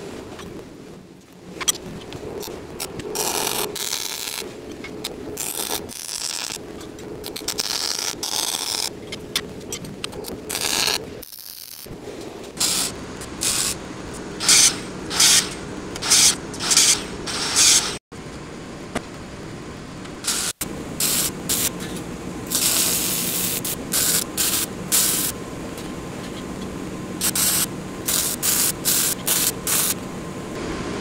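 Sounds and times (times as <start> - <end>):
welder crackling: 1.2 - 18.0, 20.0 - 26.1, 27.2 - 30.6
angle grinder cutting steel: 12.6 - 13.8.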